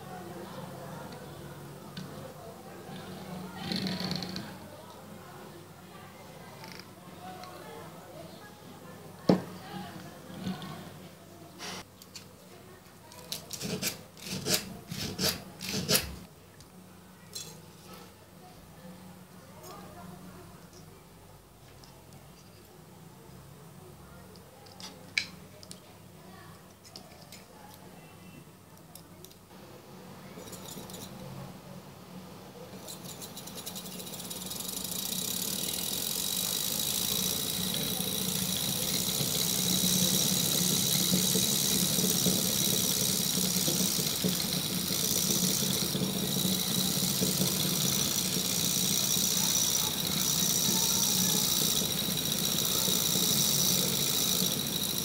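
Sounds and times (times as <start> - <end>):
electric motor whirring: 33.7 - 55.0
high hiss from motor brushes: 34.5 - 55.0.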